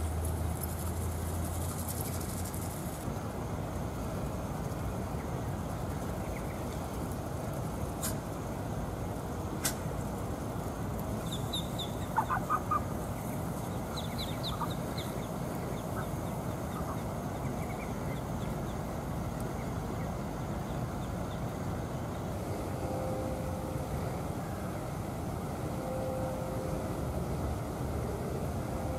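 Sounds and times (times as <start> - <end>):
steady background noise: 0.0 - 28.9
ducklings peeping: 5.1 - 7.1, 11.2 - 21.5.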